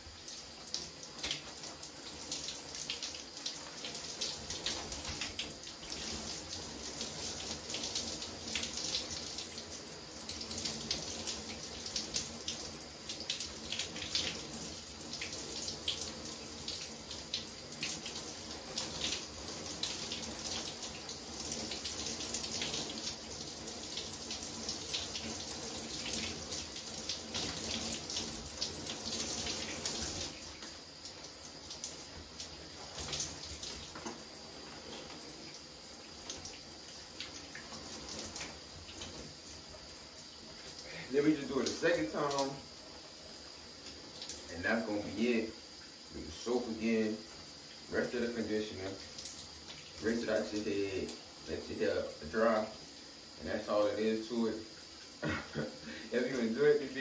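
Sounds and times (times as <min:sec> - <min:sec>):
shower spray running: 0:00.0 - 0:57.0
water splattering through hair: 0:00.7 - 0:09.6, 0:40.9 - 0:42.6.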